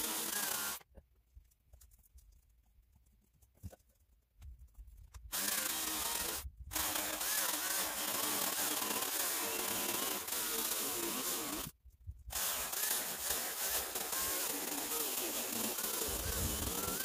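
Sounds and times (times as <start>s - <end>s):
electric chainsaw cutting log: 0.0s - 0.8s, 5.3s - 11.7s, 12.3s - 17.0s.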